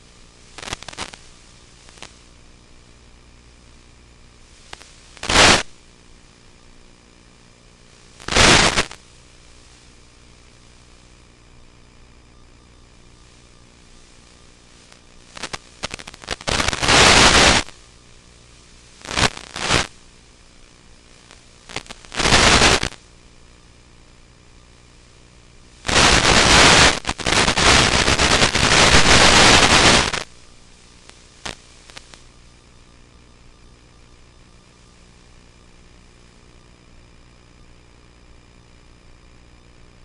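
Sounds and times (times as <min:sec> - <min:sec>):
radio static bursts: 0:00.0 - 0:02.3, 0:04.5 - 0:05.8, 0:08.1 - 0:10.0, 0:13.2 - 0:17.9, 0:18.6 - 0:20.0, 0:21.1 - 0:23.1, 0:25.7 - 0:32.4
faint steady hiss: 0:00.0 - 0:40.0.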